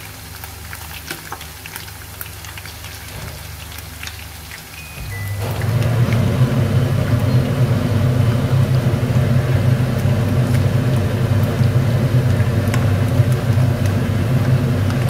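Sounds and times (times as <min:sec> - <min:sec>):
fish deep-frying in oil: 0:00.0 - 0:15.0
low machine hum: 0:04.8 - 0:15.0.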